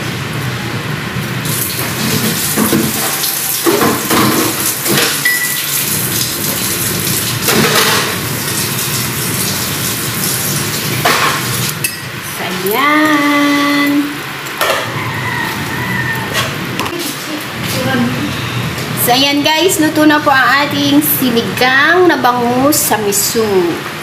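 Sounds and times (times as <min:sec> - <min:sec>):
broth bubbling in a pot: 0:01.4 - 0:11.7.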